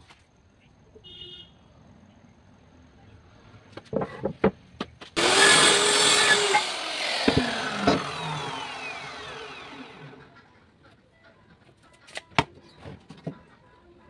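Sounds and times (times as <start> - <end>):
circular saw whining: 5.2 - 10.4.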